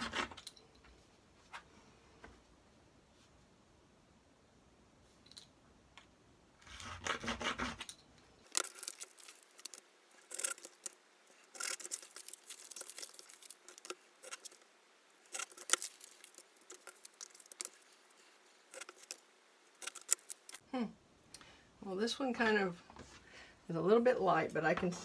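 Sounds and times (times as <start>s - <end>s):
paper rustling: 8.5s - 20.6s.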